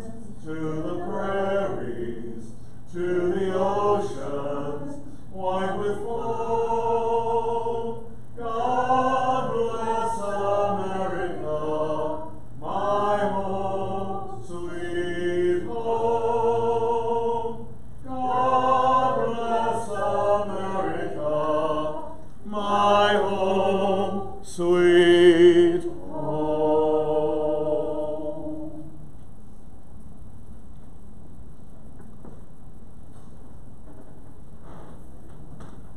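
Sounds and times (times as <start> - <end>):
unaccompanied hymn singing: 0.0 - 29.0
breaths: 2.5 - 2.9, 5.0 - 5.3.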